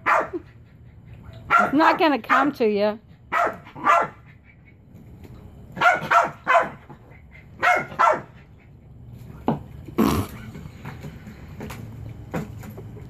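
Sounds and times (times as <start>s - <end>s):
small dog barking: 0.0s - 0.4s, 1.5s - 2.5s, 3.3s - 4.3s, 5.8s - 6.9s, 7.6s - 8.4s.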